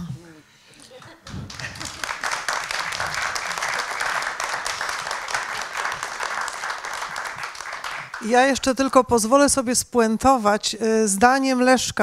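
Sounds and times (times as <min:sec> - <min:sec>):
audience applauding: 0:01.0 - 0:08.5.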